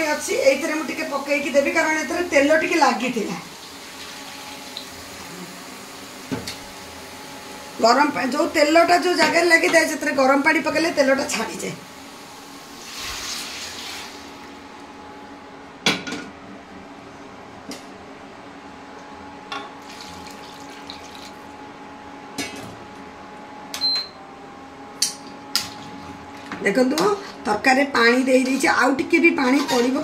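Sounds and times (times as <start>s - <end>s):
water poured into a pan hissing: 12.8s - 14.4s, 19.8s - 21.4s
metal spatula scraping a pot: 28.3s - 30.0s.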